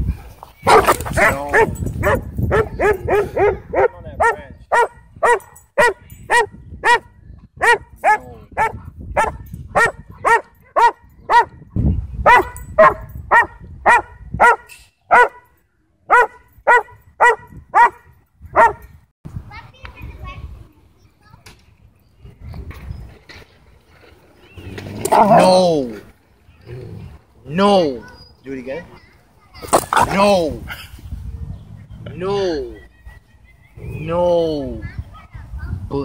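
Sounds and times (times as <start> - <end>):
dog barking: 0.6 - 11.5, 12.2 - 15.4, 16.1 - 18.8.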